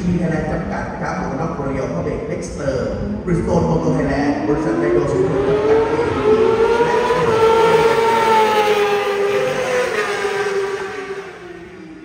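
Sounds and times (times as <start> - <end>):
motorbike engine at high revs passing: 4.3 - 12.0.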